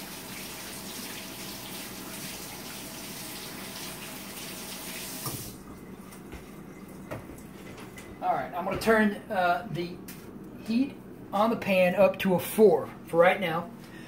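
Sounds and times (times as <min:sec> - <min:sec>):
faucet running: 0:00.0 - 0:07.6
faucet shut-off knock: 0:05.2 - 0:05.5.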